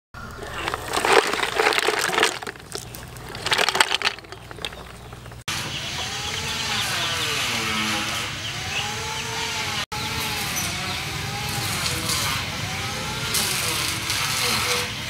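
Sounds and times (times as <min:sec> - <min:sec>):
snail shells clattering: 0:00.3 - 0:05.5.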